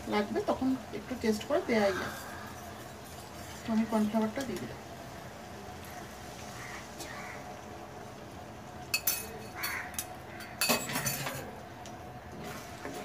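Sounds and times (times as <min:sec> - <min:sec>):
faint steady hum: 0:00.0 - 0:13.0
kitchen utensils clinking: 0:08.9 - 0:11.6.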